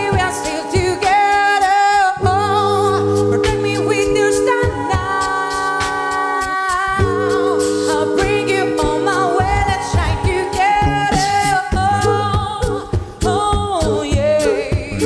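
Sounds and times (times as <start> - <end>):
a cappella group singing chords: 0.0 - 15.0
beatboxed percussion: 0.0 - 15.0
low vocal bass line: 7.0 - 15.0.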